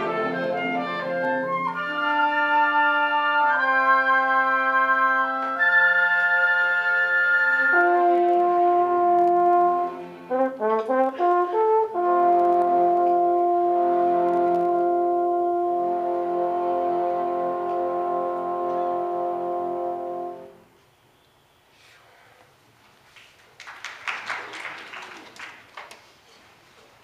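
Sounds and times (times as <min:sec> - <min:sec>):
symphony orchestra playing: 0:00.0 - 0:20.7.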